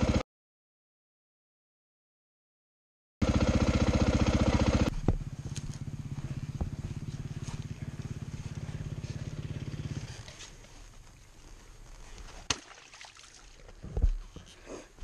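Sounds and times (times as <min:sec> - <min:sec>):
dirt bike engine idling: 0:03.2 - 0:12.3.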